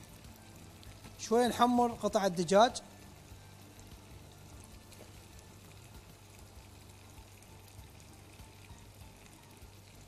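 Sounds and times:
food frying in a pot: 0.0 - 10.0.

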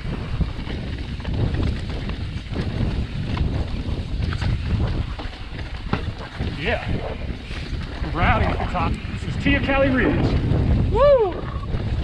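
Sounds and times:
bike tyres rolling on rocky trail: 0.0 - 12.0
wind buffeting microphone: 0.0 - 12.0.

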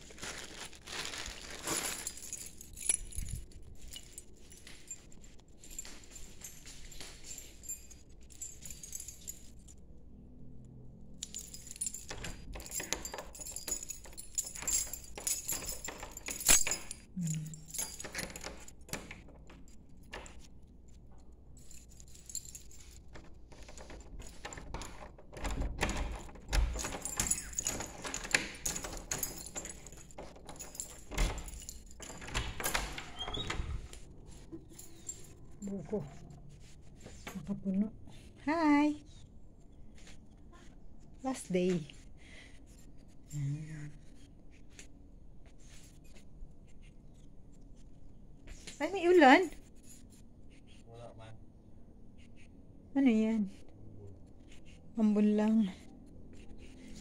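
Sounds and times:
keys jangling: 0.0 - 10.0, 11.0 - 37.5, 48.5 - 50.8
door opening: 11.4 - 20.5, 22.7 - 37.6
door bolts unlocking: 12.0 - 20.5, 23.0 - 35.4.

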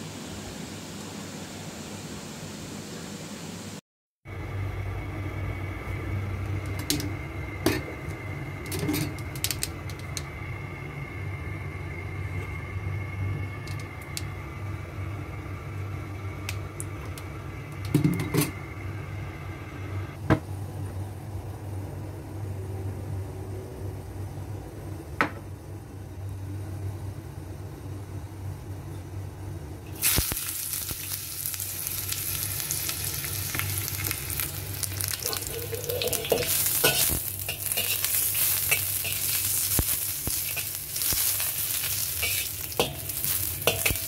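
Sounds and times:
stove humming: 0.0 - 44.0
ladle scraping a wok: 35.2 - 44.0.

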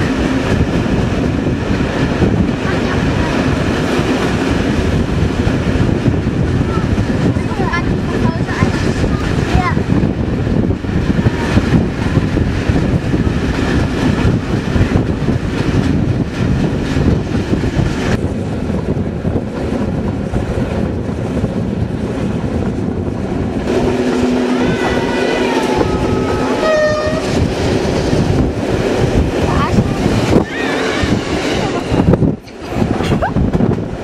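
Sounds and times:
train rumbling on rails: 0.0 - 34.0
train horn: 24.0 - 27.4.

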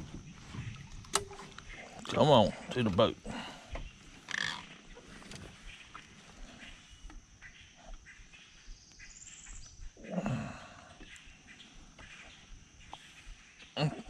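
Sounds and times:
clicks of handling in boat: 0.0 - 8.1, 11.0 - 13.1.

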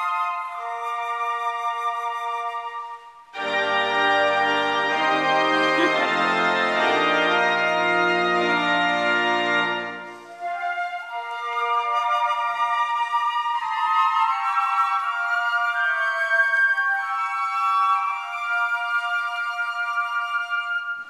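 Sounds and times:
flute ensemble sustained notes: 0.0 - 21.0
pipe organ chords: 3.4 - 10.3.

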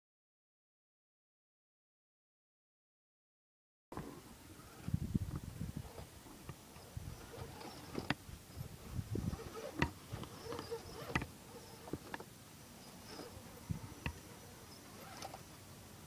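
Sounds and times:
electric motor buzzing: 6.8 - 12.2, 12.8 - 15.6.

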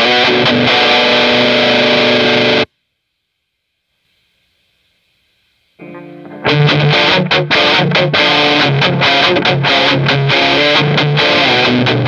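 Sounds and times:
distorted electric guitar chords: 0.0 - 2.7, 5.8 - 12.0
guitar note ringing: 5.8 - 12.0.

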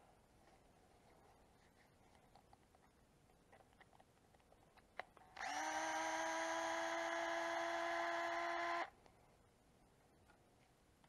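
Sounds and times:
electric screwdriver whine: 5.4 - 8.9.

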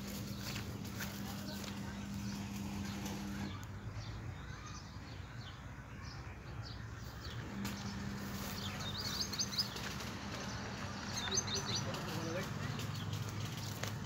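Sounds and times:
steady low hum: 0.0 - 4.0
birds chirping: 0.0 - 14.0.

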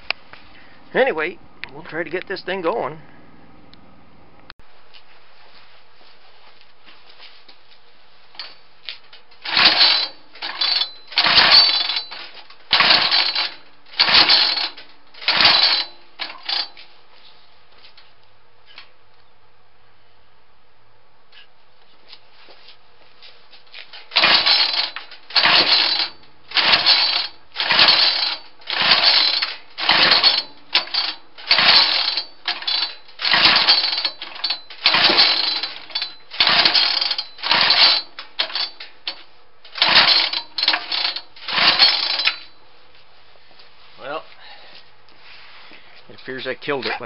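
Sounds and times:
small engine being cranked: 9.4 - 16.8, 24.0 - 42.5.

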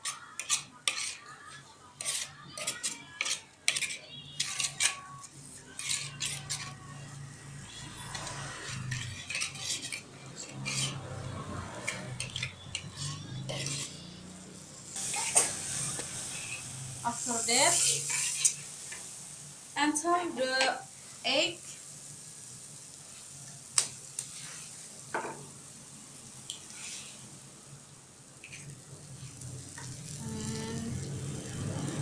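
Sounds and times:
metal spatula scraping wok: 0.0 - 19.2, 24.1 - 25.3, 26.5 - 27.4, 28.4 - 30.8
sizzling hiss: 4.4 - 32.0.

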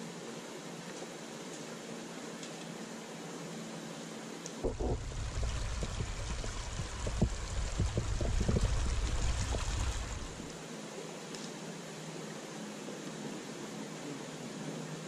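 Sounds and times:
brook running over stones: 4.6 - 10.6.

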